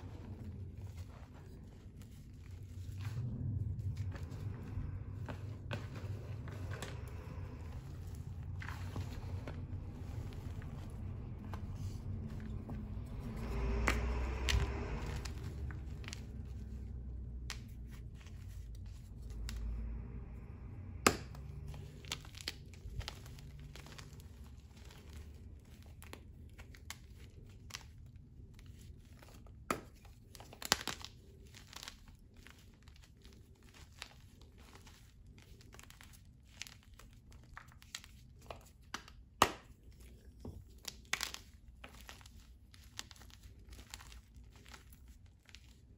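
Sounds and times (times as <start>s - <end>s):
hands rubbing chalk powder: 0.0s - 45.9s
chalk pieces snapping: 8.8s - 20.0s, 21.0s - 45.9s.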